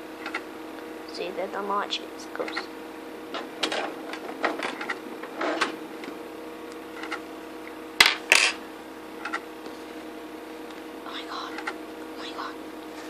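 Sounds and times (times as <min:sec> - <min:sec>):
steady hum: 0:00.0 - 0:13.0
dvd drive clicks and rattles: 0:00.2 - 0:00.5, 0:02.3 - 0:02.7, 0:03.3 - 0:08.3, 0:09.2 - 0:09.7, 0:11.5 - 0:11.8.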